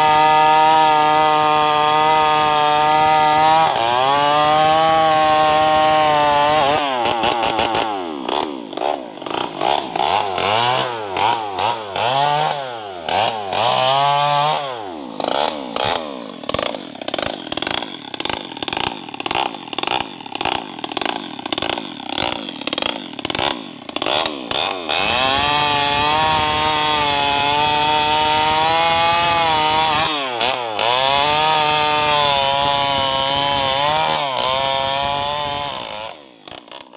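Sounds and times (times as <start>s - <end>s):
chainsaw running: 0.0s - 36.9s.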